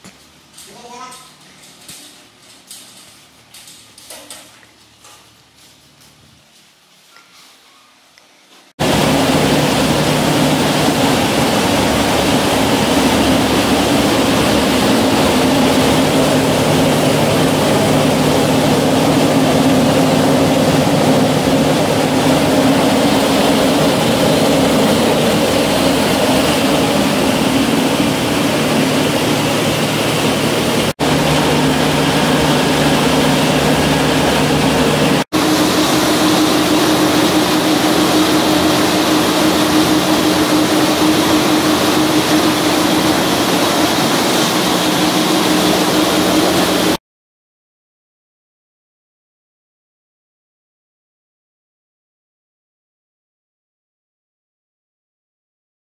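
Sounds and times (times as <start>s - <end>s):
rice mill mechanical drone: 8.8s - 47.0s.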